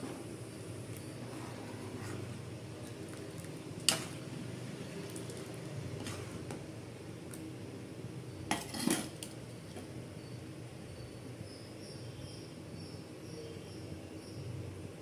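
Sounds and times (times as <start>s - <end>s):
metal cookware clinking: 8.5s - 9.2s.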